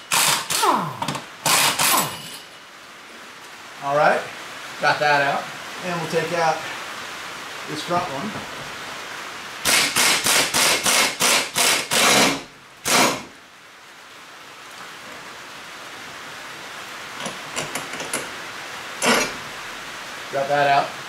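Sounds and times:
impact wrench hammering: 0:00.0 - 0:02.4, 0:09.7 - 0:13.2.

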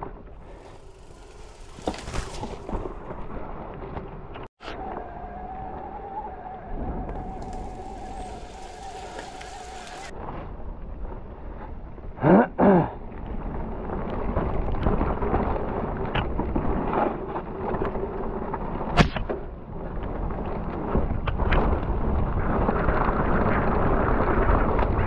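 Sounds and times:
bike tyres rumbling on dirt: 0:00.0 - 0:04.5, 0:06.7 - 0:11.9
wind on microphone: 0:00.0 - 0:12.2
steady whine: 0:00.2 - 0:03.8, 0:04.6 - 0:10.1
pitch sweeping sounds: 0:04.6 - 0:10.1.

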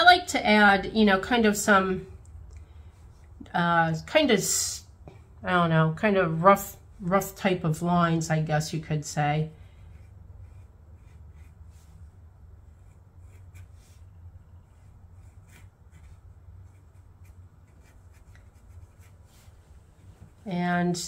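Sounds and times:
low steady hum: 0:00.0 - 0:21.0
marker scratching on paper: 0:09.8 - 0:20.6.

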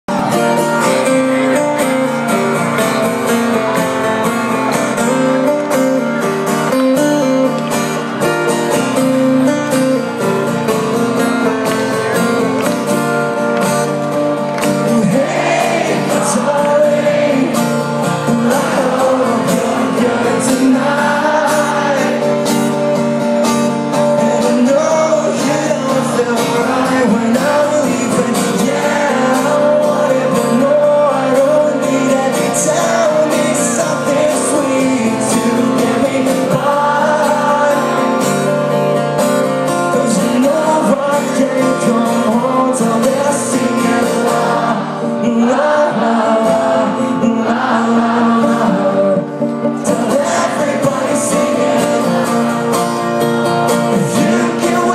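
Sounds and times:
strummed acoustic guitar: 0:00.1 - 0:54.9
person singing: 0:14.7 - 0:38.8, 0:39.7 - 0:54.9.

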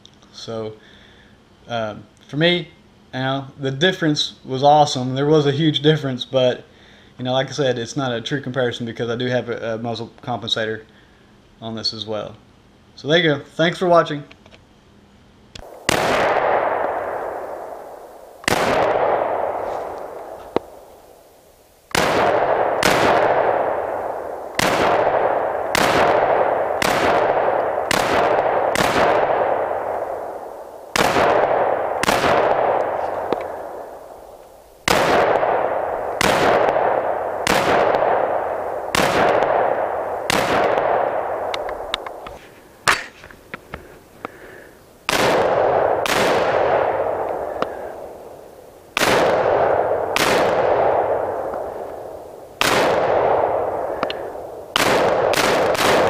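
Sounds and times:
rifle shots with echo: 0:15.6 - 0:42.3, 0:45.1 - 0:56.0.

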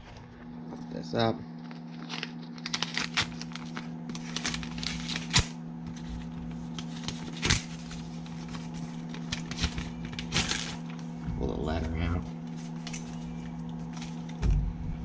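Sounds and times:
paper crackles and snaps: 0:01.6 - 0:11.1, 0:12.5 - 0:14.5
paper envelope tearing and rustling: 0:01.6 - 0:11.1, 0:12.4 - 0:14.5.

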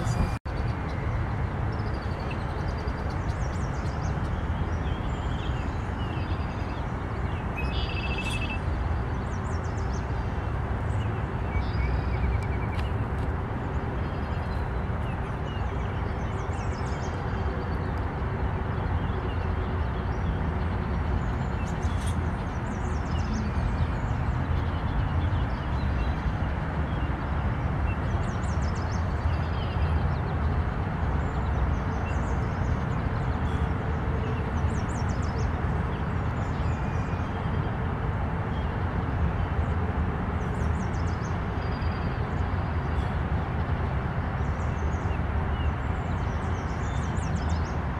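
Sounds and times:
low rumbling noise: 0:00.0 - 0:01.8.

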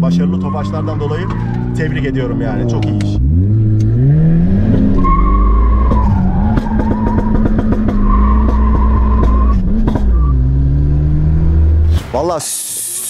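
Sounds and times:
car engine at full throttle: 0:00.0 - 0:12.1.

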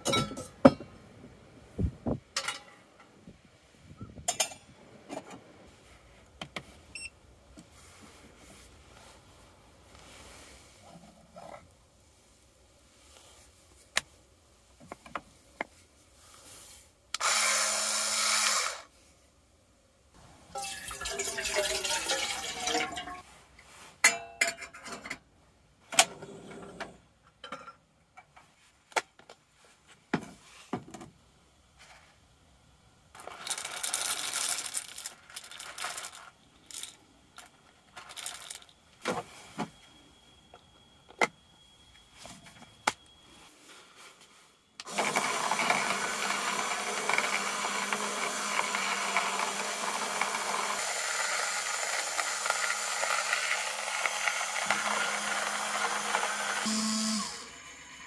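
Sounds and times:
electric coffee grinder grinding: 0:17.2 - 0:18.9, 0:44.8 - 0:58.0
coffee beans rattling: 0:33.2 - 0:38.8.

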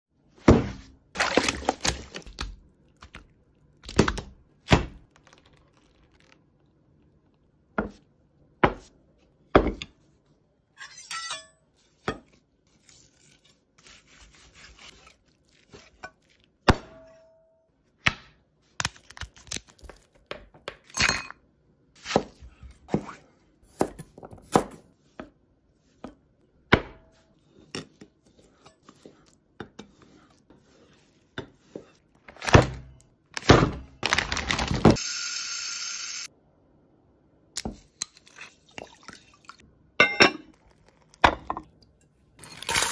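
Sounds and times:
soft cutting and scraping: 0:12.6 - 0:16.0.

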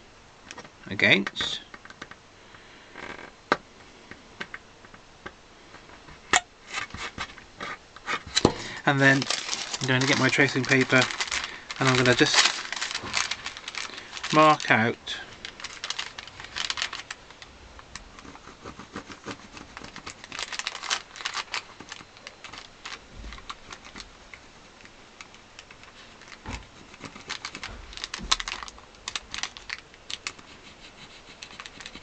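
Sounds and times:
pencil scratching on paper: 0:18.2 - 0:20.0, 0:30.4 - 0:32.0.

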